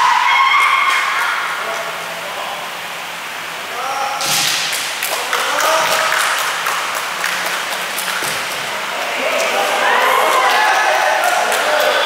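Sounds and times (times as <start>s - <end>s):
people shouting: 0.0s - 1.6s, 9.2s - 12.0s.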